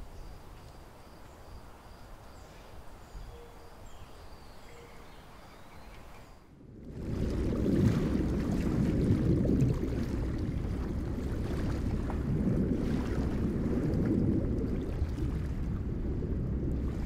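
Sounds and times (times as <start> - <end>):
muffled underwater water rush: 6.4 - 17.0.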